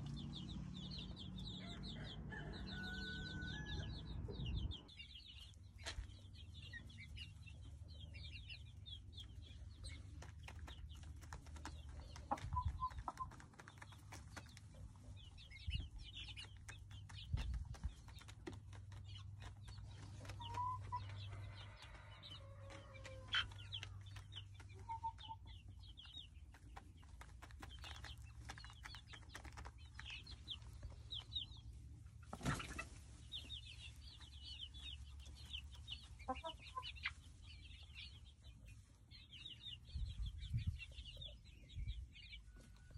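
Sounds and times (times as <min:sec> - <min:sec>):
chicks peeping: 0:00.0 - 0:42.9
chicken clucks: 0:01.4 - 0:42.9
steady low rumble: 0:03.8 - 0:06.2.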